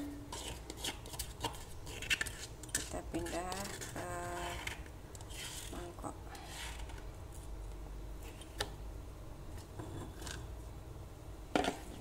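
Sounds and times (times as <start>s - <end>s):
utensil scraping a stone mortar: 0.2s - 6.9s.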